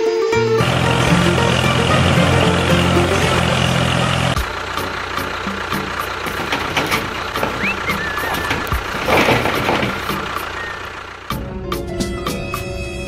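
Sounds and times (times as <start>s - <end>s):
clicks and rattles: 5.5s - 11.0s.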